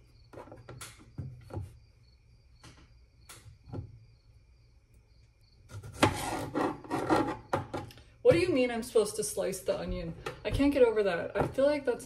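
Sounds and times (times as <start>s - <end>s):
knife slicing on plastic board: 5.7s - 7.1s.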